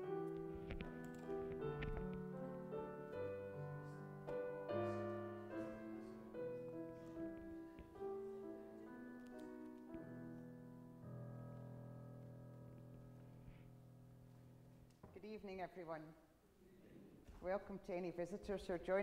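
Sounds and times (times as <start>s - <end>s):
slow piano music: 0.0s - 15.0s.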